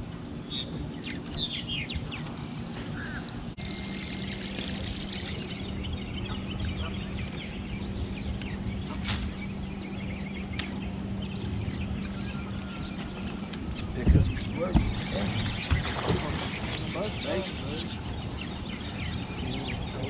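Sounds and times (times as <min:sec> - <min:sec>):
wind and water rumble: 0:00.0 - 0:20.0
small birds chirping: 0:00.4 - 0:20.0
electric trolling motor humming: 0:03.3 - 0:12.6.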